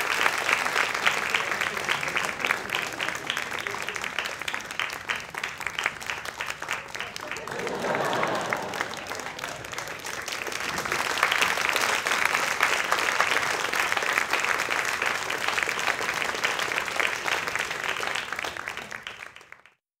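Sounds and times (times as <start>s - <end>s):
audience applauding: 0.0s - 19.8s.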